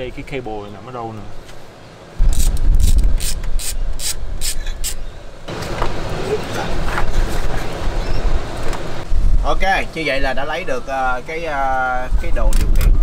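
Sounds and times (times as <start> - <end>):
wind rumble on microphone: 2.2 - 4.8, 6.8 - 13.0.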